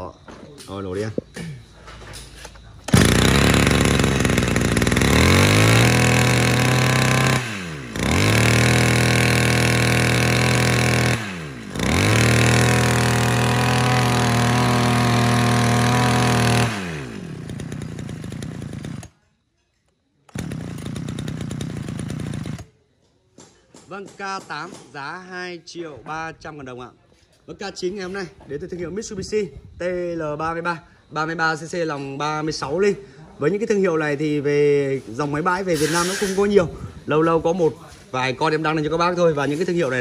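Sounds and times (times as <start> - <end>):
brush cutter engine revving: 2.9 - 19.1, 20.3 - 22.7.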